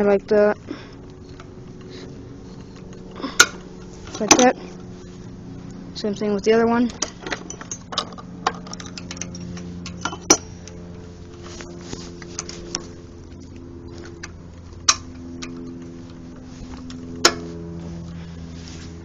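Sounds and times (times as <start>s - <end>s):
metal engine parts clinking: 0.0s - 18.2s
steady low hum: 0.0s - 19.0s.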